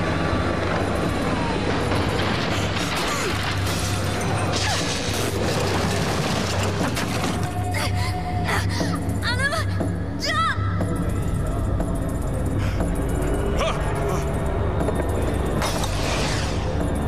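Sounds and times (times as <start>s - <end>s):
steady low drone: 0.0s - 17.0s
dramatic cartoon score: 6.5s - 17.0s.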